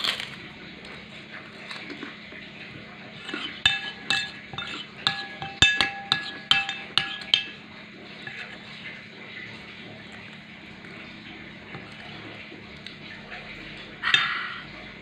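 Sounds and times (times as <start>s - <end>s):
metal spoon clinking on ceramic plate: 3.3s - 7.6s.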